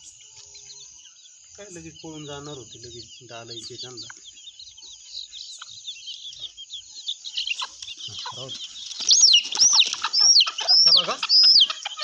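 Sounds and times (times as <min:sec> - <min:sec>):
chicks peeping: 0:00.0 - 0:12.0
hen clucking: 0:00.0 - 0:12.0.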